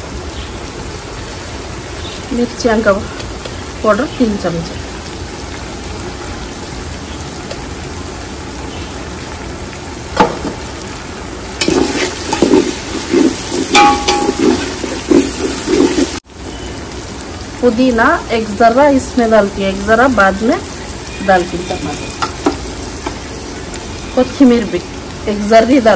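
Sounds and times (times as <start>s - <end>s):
onions sizzling in hot oil: 0.0s - 25.9s
metal spoon scraping pot: 11.6s - 16.2s.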